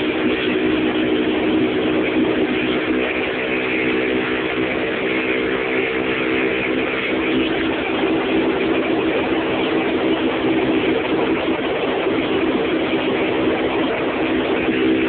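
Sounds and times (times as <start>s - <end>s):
moped engine running: 0.0s - 15.0s.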